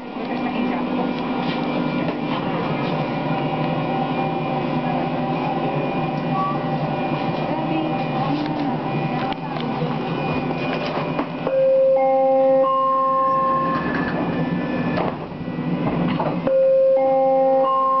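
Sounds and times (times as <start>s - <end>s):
train car hum: 0.0s - 18.0s
three-tone door chime: 10.1s - 14.5s, 16.4s - 18.0s.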